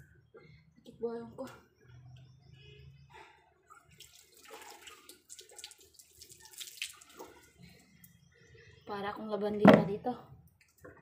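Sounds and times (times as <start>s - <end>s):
water splashing and dripping: 3.7s - 8.2s.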